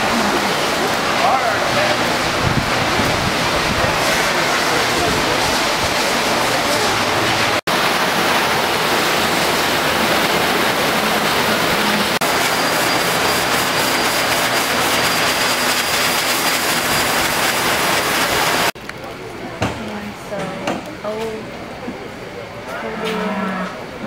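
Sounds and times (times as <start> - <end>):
blower rushing air: 0.0 - 18.8.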